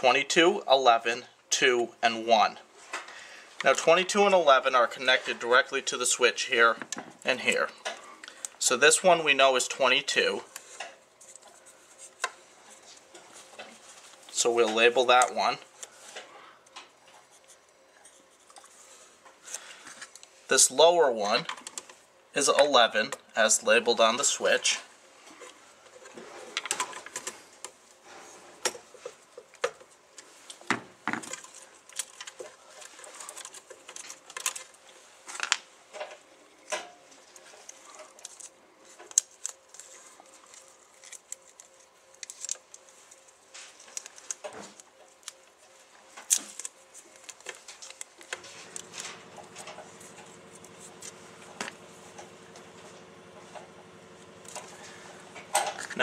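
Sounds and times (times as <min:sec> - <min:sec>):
steady low hum: 0:22.0 - 0:56.0
clicks taps and rustles of handling wires: 0:28.6 - 0:56.0.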